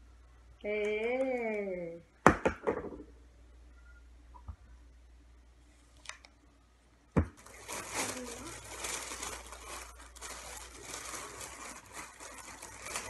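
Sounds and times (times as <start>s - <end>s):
bag crinkling and rustling: 7.4s - 13.0s.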